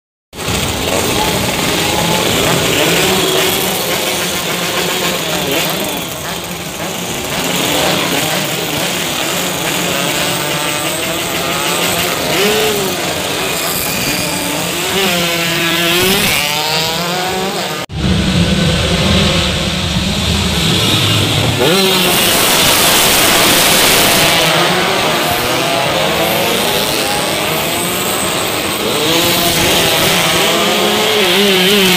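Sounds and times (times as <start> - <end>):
motorcycles racing past: 0.4 - 31.9
low engine drone: 17.9 - 26.0.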